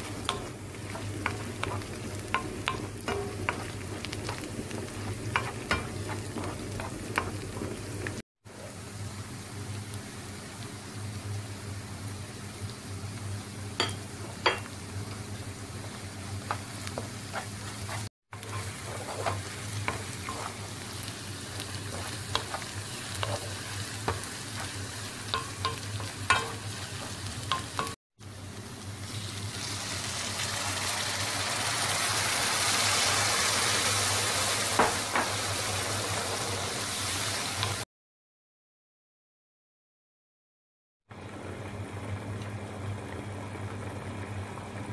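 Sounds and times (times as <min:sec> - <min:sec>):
wooden spoon scraping pan: 0:00.0 - 0:08.0, 0:15.8 - 0:27.8
rice and onion frying: 0:00.0 - 0:37.9.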